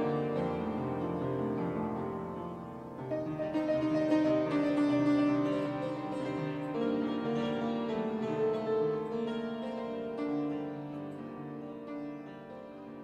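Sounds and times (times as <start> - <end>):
keyboard music with held notes: 0.0 - 13.0.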